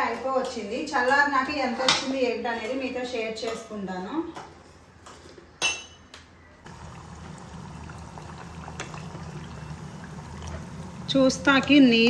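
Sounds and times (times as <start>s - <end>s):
butter bubbling in a pot: 6.7s - 12.0s.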